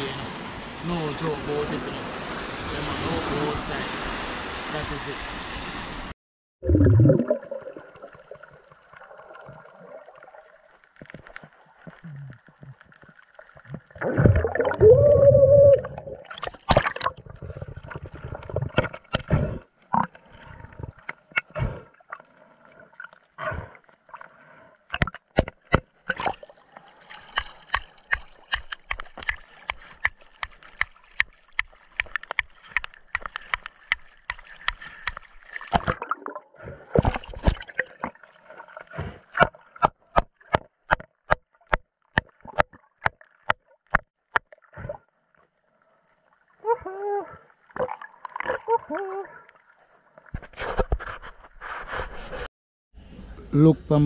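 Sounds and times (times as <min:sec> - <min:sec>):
underwater bubbles gurgling: 0:06.6 - 0:25.1, 0:30.6 - 0:39.8.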